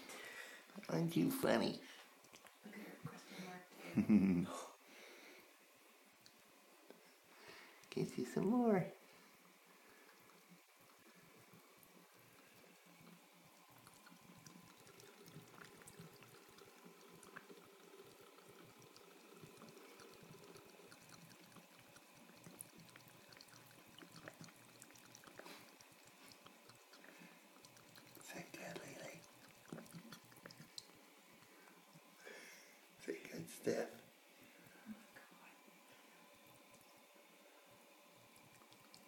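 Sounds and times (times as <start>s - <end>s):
cat lapping water: 9.3s - 32.2s, 35.6s - 39.0s
water trickling from faucet: 9.4s - 32.2s, 36.2s - 39.0s.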